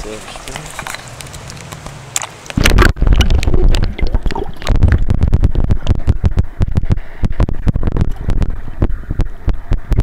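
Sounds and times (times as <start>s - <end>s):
camera splashing into water: 2.6s - 5.1s
muffled underwater current rumble: 2.6s - 10.0s.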